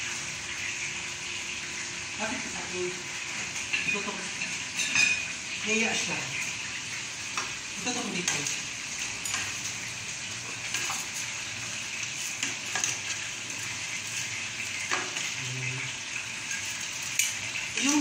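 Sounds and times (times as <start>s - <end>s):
noodles sizzling in a pot: 0.0s - 18.0s
utensils clinking against pot: 3.7s - 5.3s, 8.2s - 9.8s, 10.4s - 11.3s, 12.0s - 13.7s, 14.7s - 15.4s, 16.4s - 18.0s.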